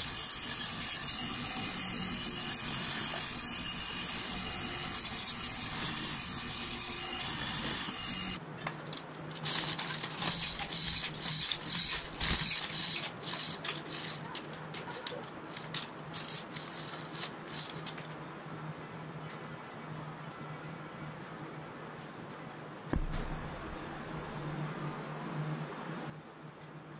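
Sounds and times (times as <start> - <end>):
band saw running: 0.0 - 8.4.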